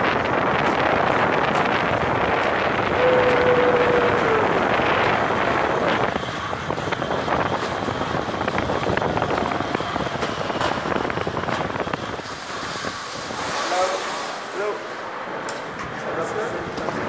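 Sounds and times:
zip-line trolley on cable: 0.0 - 15.1.

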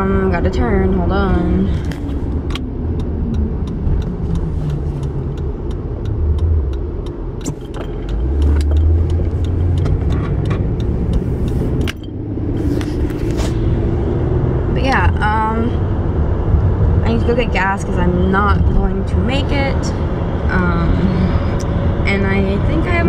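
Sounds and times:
car engine and road rumble: 0.0 - 23.0
light ticks: 1.8 - 12.1.

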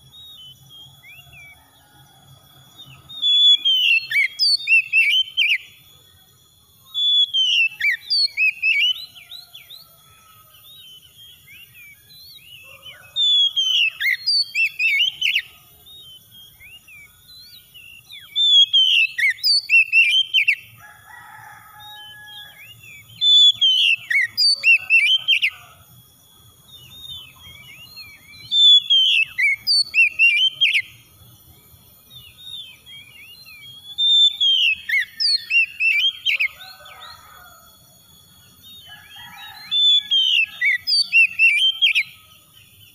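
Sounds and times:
bird singing whistled phrases: 3.0 - 5.8, 6.9 - 9.9, 10.6 - 20.7, 22.0 - 25.7, 26.7 - 31.0, 32.1 - 37.2, 38.7 - 42.2.

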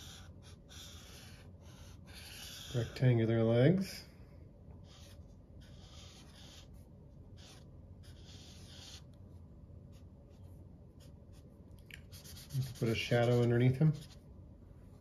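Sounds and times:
marker scratching on paper: 0.0 - 3.1, 4.8 - 9.2, 9.9 - 11.4, 12.0 - 14.2.

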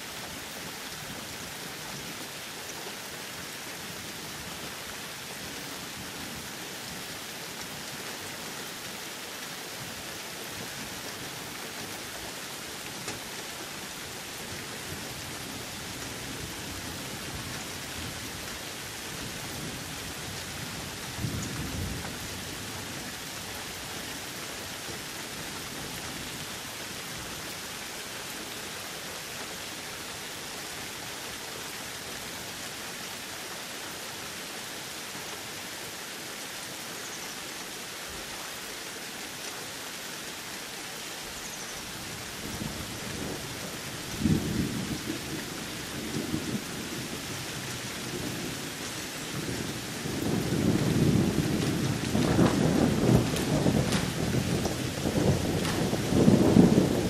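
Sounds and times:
steady rain hiss: 0.0 - 57.0
low thunder rumble: 49.4 - 57.0.

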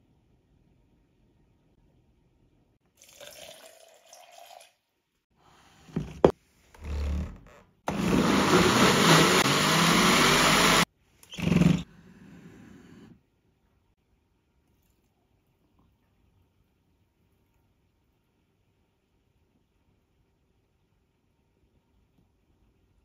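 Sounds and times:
water pouring into blender jar: 2.9 - 4.8
blender running: 7.9 - 11.9.

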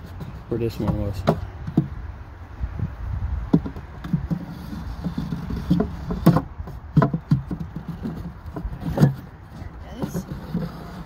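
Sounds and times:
wooden frames knocking on wood: 0.2 - 2.0, 3.4 - 4.4, 5.0 - 10.3.

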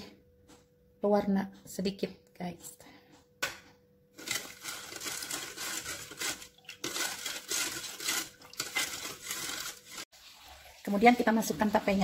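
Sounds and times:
metal spatula scraping saucepan: 4.2 - 10.1.

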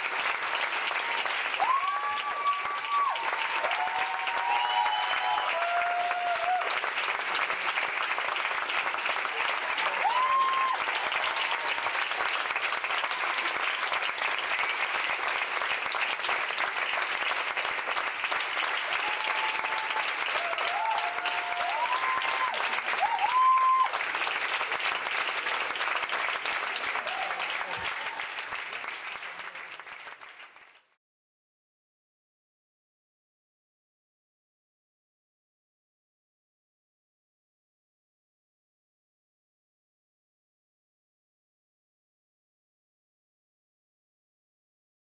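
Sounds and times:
audience applauding: 0.0 - 31.0.

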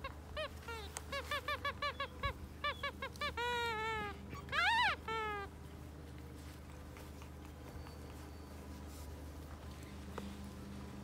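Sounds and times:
puppy whimpering and yelping: 0.0 - 5.5.

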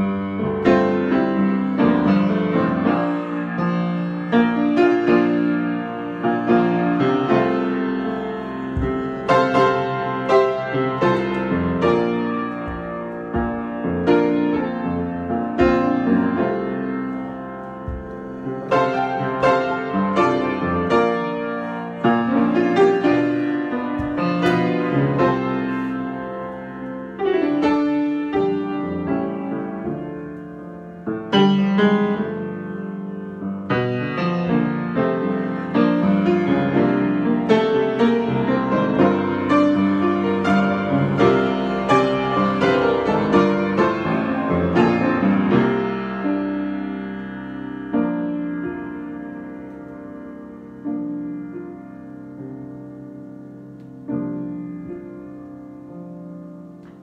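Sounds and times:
grand piano improvisation: 0.0 - 57.0.

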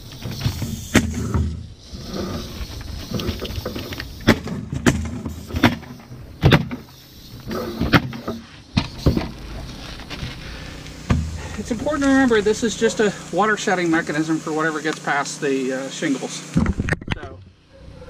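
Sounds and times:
rustling: 1.9 - 14.4.

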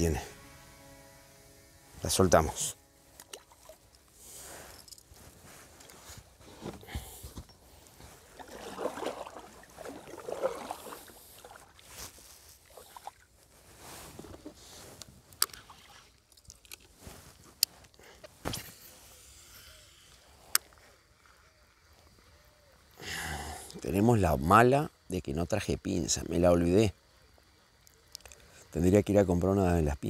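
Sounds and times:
water lapping against kayak hull: 5.6 - 17.0.

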